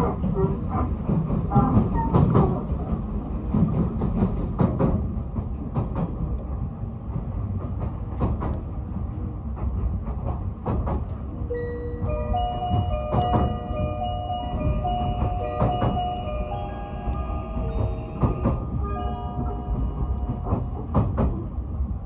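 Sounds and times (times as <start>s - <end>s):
train rumbling inside carriage: 0.0s - 22.0s
onboard chime: 11.5s - 20.8s
wheels clicking over rail joints: 12.0s - 21.5s.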